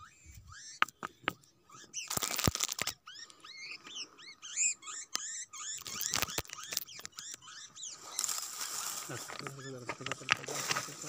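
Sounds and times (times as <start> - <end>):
small birds chirping: 0.0 - 11.0
footsteps crunching on stones: 8.1 - 11.0.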